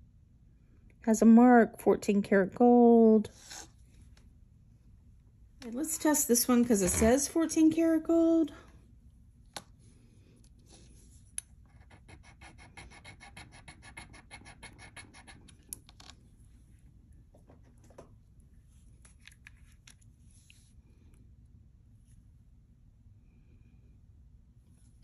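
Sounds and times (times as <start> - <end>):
ring scratching on stone: 6.6 - 7.4, 11.7 - 15.5.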